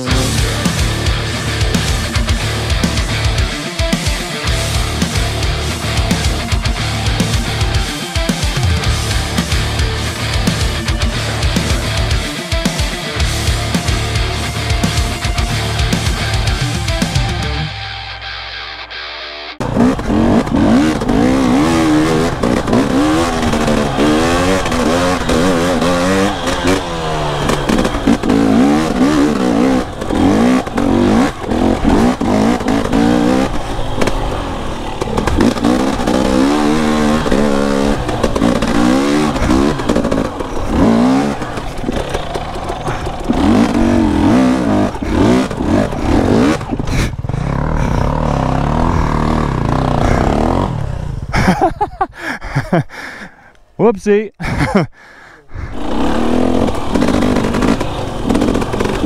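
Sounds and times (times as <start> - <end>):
dirt bike engine revving: 0.0 - 18.0, 19.6 - 53.5, 54.4 - 59.0
bike knocking and clattering: 21.8 - 48.2.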